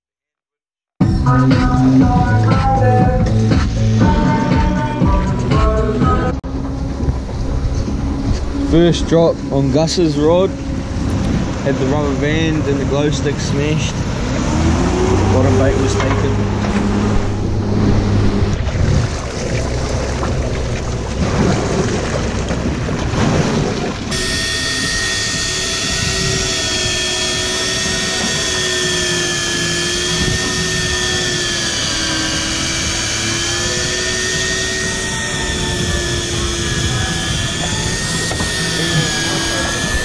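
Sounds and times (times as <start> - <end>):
boat engine: 1.0 - 40.0
steady motor whine: 1.0 - 40.0
wind: 1.2 - 40.0
rushing water: 9.2 - 24.8.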